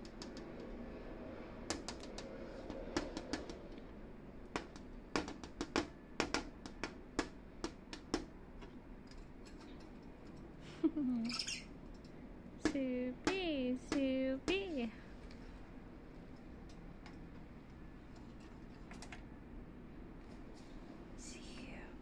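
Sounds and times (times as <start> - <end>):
beak pecking clicks: 0.0 - 0.7.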